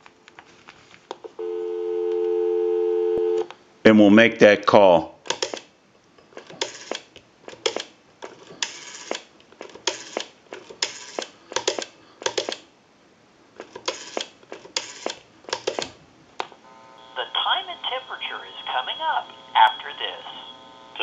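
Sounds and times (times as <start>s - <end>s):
rotary telephone dial clicking: 6.4s - 12.6s, 13.6s - 15.9s.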